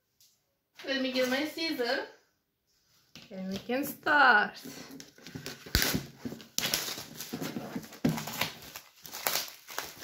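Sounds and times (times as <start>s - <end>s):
plastic shrink wrap crinkling and tearing: 4.9s - 10.0s.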